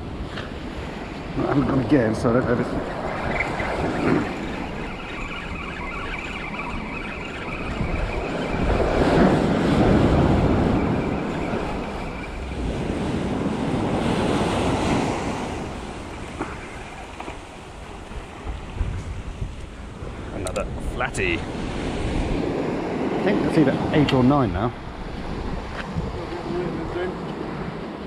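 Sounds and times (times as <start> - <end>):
wind buffeting microphone: 0.0 - 28.0
sea waves washing onto beach: 6.5 - 28.0.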